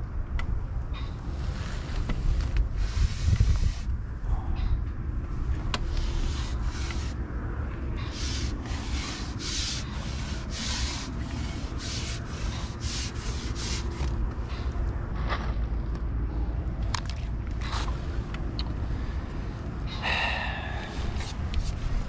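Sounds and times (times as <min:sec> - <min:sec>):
wind buffeting microphone: 0:00.0 - 0:12.7
grass rustling in wind: 0:00.6 - 0:15.9, 0:17.2 - 0:22.0.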